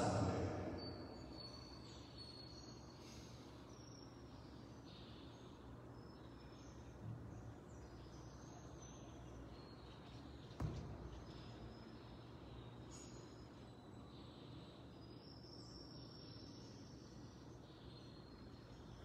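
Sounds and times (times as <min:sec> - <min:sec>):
faint bird chirps: 0:00.0 - 0:19.0
steady low hum: 0:00.0 - 0:19.0
soft bump: 0:10.6 - 0:11.1.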